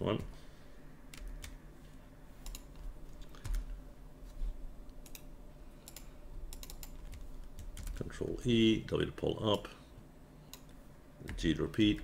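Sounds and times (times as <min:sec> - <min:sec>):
faint steady hum: 0:00.0 - 0:12.0
keyboard keys clicking: 0:05.9 - 0:08.0.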